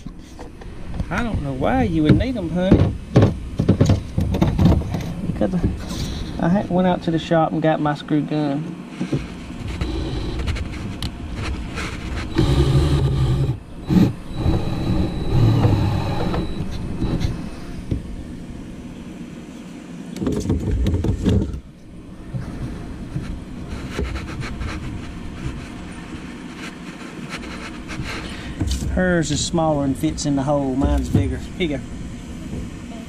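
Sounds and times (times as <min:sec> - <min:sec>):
screw gun motor whine: 0:09.7 - 0:10.8, 0:12.1 - 0:17.6.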